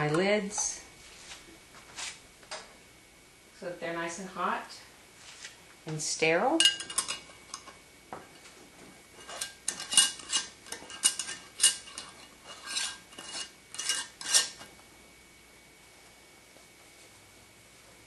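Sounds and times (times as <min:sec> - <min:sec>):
metal kitchenware clinking: 0:06.6 - 0:07.8, 0:09.2 - 0:14.6.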